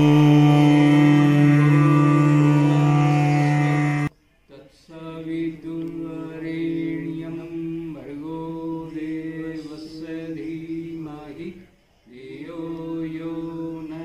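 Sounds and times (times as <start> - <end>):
person chanting a held note: 0.0 - 4.1.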